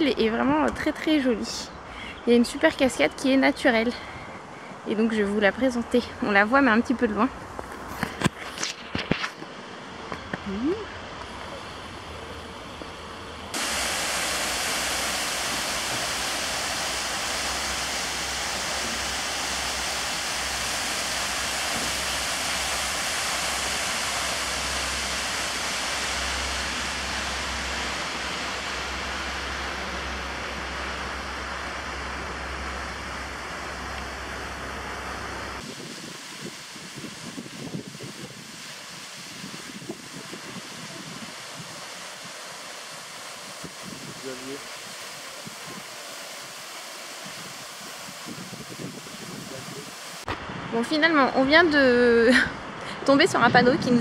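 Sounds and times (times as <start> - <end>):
waterfall rushing: 13.5 - 50.4
wind on microphone: 35.5 - 42.4, 43.4 - 46.0, 47.2 - 54.0.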